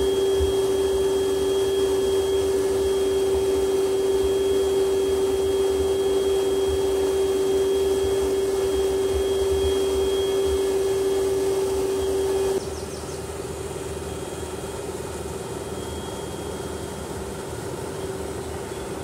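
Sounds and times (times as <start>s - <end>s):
turbine whine: 0.0s - 19.0s.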